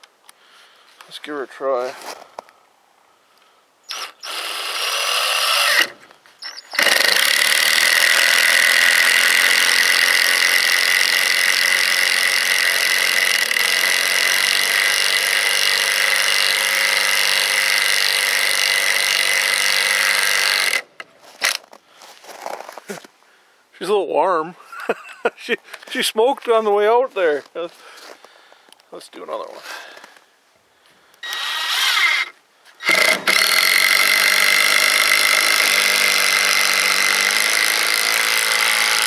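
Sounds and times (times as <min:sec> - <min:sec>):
cordless driver whining under load: 0:03.9 - 0:21.6, 0:31.1 - 0:39.0.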